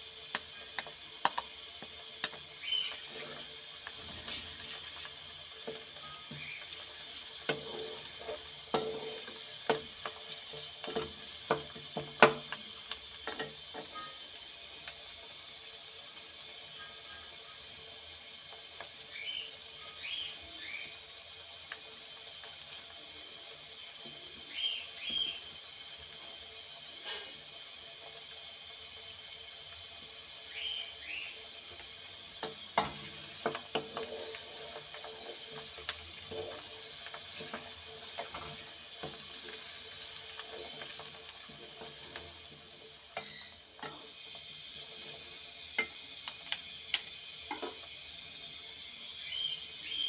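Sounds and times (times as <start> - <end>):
onions sizzling in hot oil: 0.0 - 50.0
wooden spoon scraping pan: 2.8 - 9.4.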